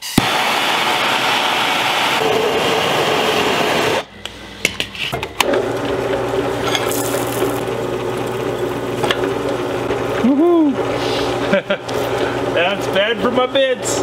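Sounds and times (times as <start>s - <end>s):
drill press motor running: 5.4s - 14.0s.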